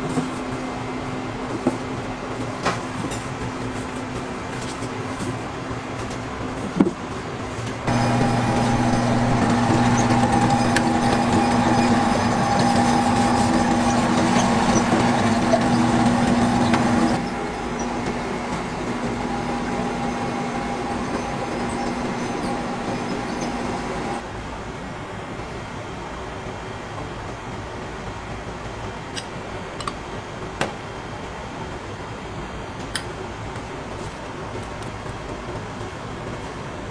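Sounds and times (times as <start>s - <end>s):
mechanical hum: 0.0s - 36.9s
held tones: 7.9s - 24.2s.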